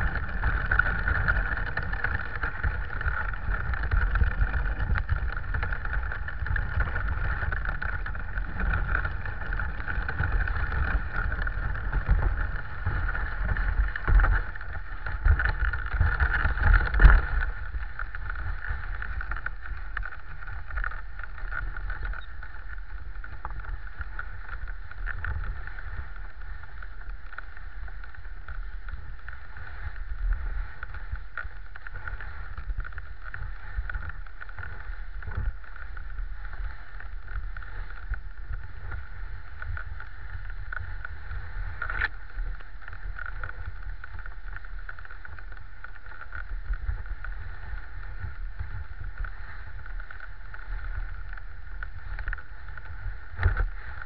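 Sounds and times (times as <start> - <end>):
low rumble: 0.0 - 54.0.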